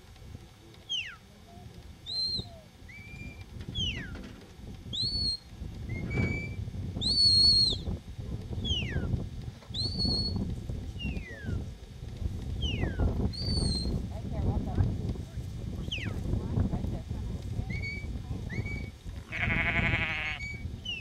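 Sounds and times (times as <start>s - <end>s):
shrill whistle commands: 2.0s - 4.1s, 4.9s - 7.9s, 9.7s - 10.4s, 12.6s - 13.9s.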